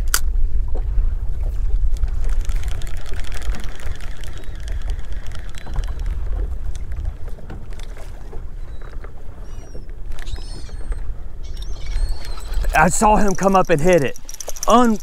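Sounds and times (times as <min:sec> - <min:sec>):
wind rumbling on microphone: 0:00.0 - 0:15.0
water slapping boat hull: 0:00.2 - 0:15.0
rapid light clicks: 0:02.2 - 0:06.9, 0:11.5 - 0:15.0
bird calls: 0:03.3 - 0:06.4, 0:08.4 - 0:15.0.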